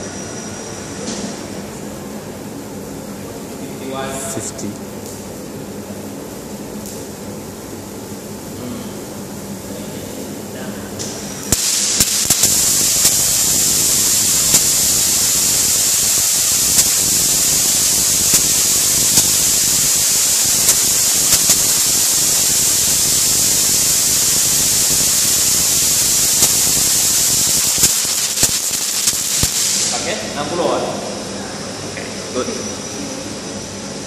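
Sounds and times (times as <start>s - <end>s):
sharp electrical cracks: 11.4s - 30.4s
electrical discharge hissing: 11.4s - 30.6s.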